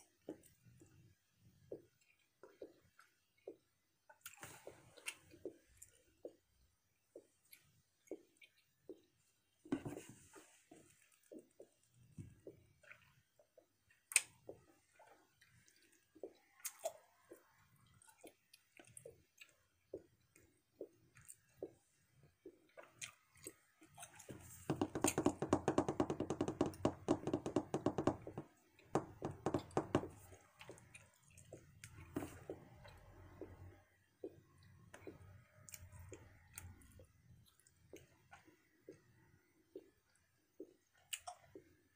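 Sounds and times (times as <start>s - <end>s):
person chewing gum: 10.4s - 41.8s.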